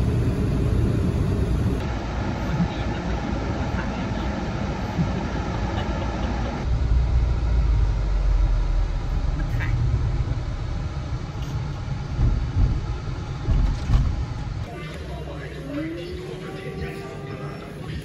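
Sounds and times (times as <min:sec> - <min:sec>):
car cabin rumble: 0:06.5 - 0:18.0.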